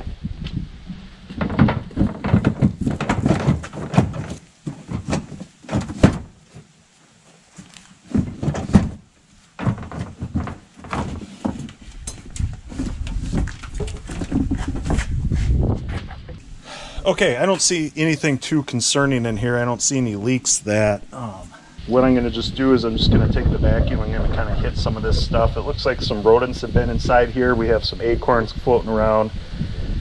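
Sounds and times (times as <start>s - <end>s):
metal panel knocking and scraping: 1.3s - 6.3s.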